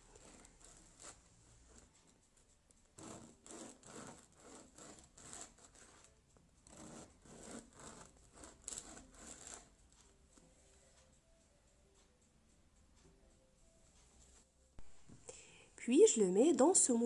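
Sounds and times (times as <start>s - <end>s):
knife sawing through bread: 3.0s - 6.1s, 6.7s - 9.7s.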